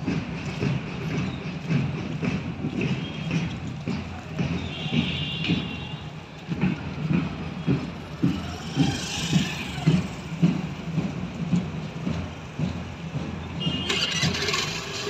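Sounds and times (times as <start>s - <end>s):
footsteps marching on pavement: 0.0s - 15.0s.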